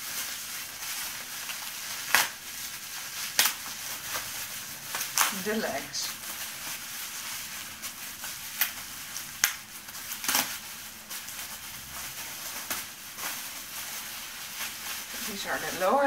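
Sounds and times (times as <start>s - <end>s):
packaging rustling and crinkling: 0.0s - 16.0s
sharp crackles: 0.0s - 16.0s.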